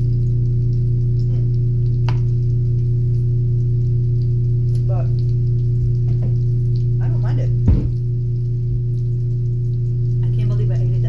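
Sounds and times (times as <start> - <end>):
low electrical hum: 0.0 - 11.0.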